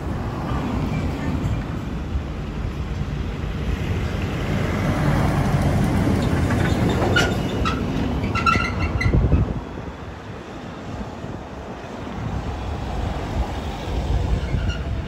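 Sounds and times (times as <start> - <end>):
short high squeaks: 6.6 - 9.3.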